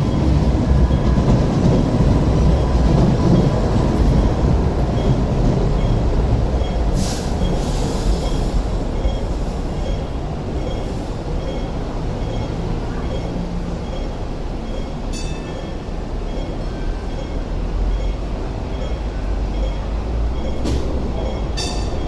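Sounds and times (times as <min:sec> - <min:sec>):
train wheels and motors rumbling: 0:00.0 - 0:22.0
faint high beep: 0:09.0 - 0:20.6.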